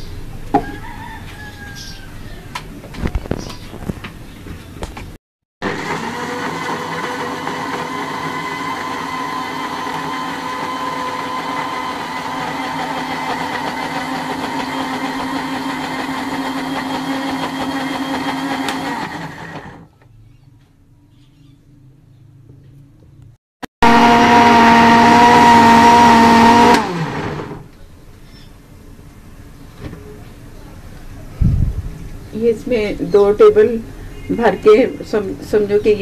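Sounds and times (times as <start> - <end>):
electric blender grinding: 5.6 - 19.8, 23.8 - 27.7.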